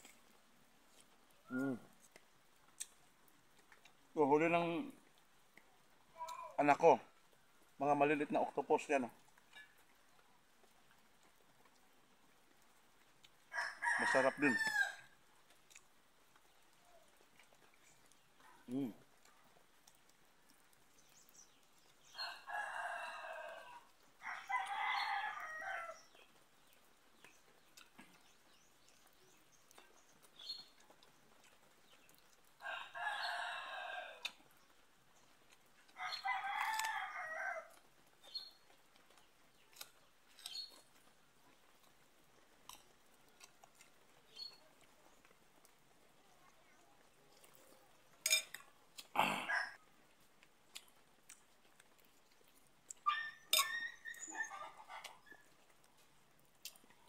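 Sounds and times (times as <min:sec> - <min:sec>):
rooster crowing: 0:13.5 - 0:15.1, 0:22.3 - 0:26.1, 0:32.6 - 0:34.3, 0:36.0 - 0:37.8.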